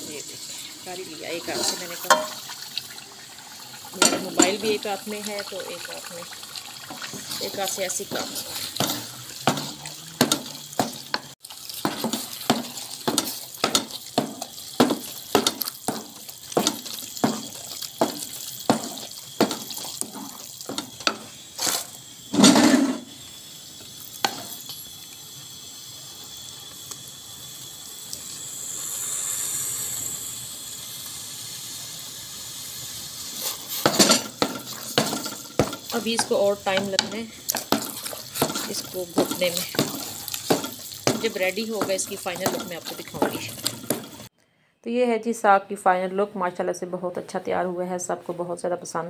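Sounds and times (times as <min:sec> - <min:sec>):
wooden spoon stirring in metal pot: 0:00.0 - 0:23.1, 0:33.3 - 0:44.3
steady hiss: 0:00.0 - 0:44.3.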